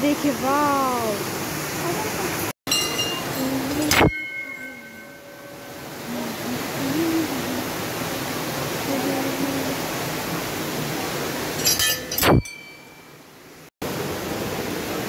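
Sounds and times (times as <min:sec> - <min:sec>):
brass temple bell ringing: 0:02.7 - 0:06.2.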